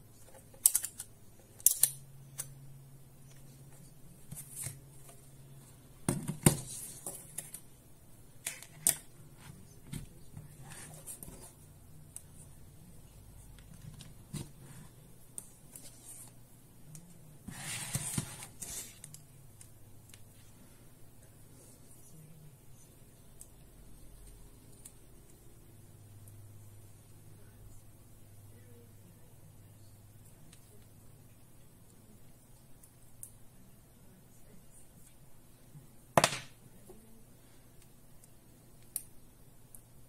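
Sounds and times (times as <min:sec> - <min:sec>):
rustling scrape: 0:17.4 - 0:19.0.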